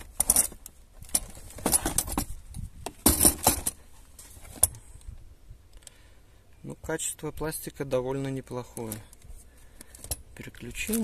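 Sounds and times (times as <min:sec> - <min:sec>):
tool shifting in plastic case: 0:00.0 - 0:04.8, 0:09.8 - 0:11.0.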